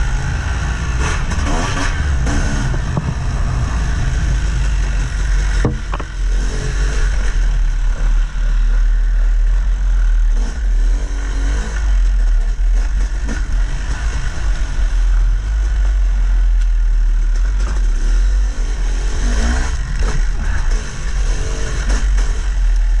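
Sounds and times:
dirt bike engine revving: 0.0 - 23.0
sharp knock: 5.6 - 6.1.

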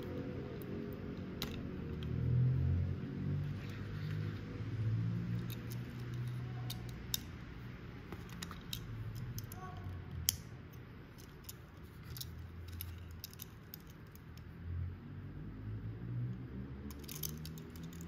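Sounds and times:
model cars clicking and tapping: 5.3 - 7.4, 8.1 - 14.5, 16.9 - 18.0.

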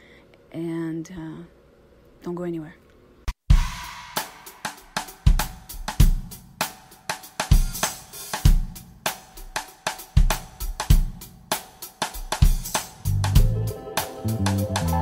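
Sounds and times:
rock drum kit beat: 3.4 - 15.0.

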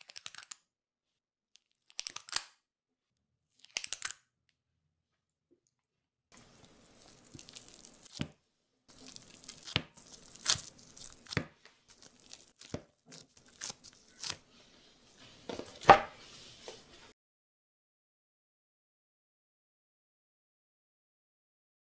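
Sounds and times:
cookie dough crackling: 6.4 - 17.1.

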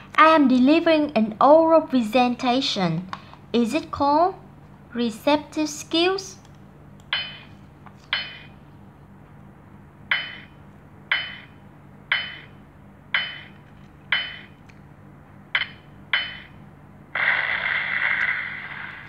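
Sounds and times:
countdown timer ticks: 10.1 - 10.5, 11.1 - 11.5, 12.1 - 13.5, 15.6 - 16.6.

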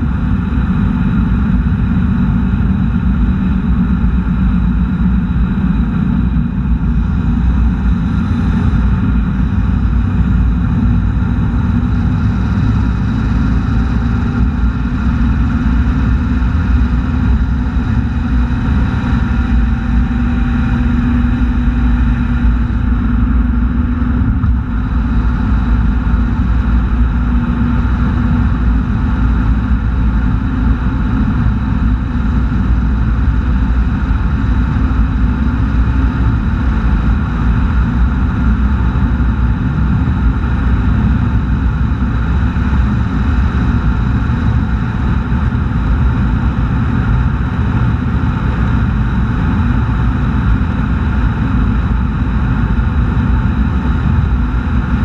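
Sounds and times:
car road noise rumble: 0.0 - 55.0.

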